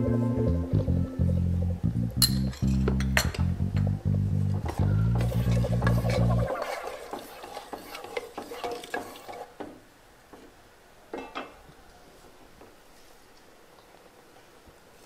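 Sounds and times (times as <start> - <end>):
spoon clinking against pot: 2.2 - 3.5
spoon stirring and scraping pot: 5.2 - 9.6.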